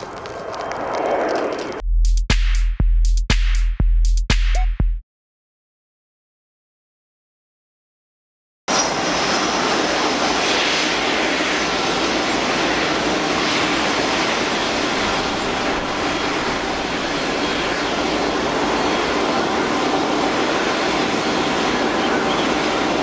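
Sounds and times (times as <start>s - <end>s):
jet engine roar: 0.0s - 1.8s, 8.7s - 23.0s.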